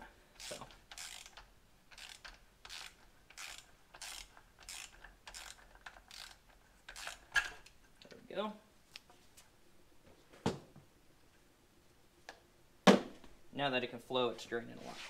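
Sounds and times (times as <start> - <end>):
ratchet wrench clicking: 0.4 - 7.5.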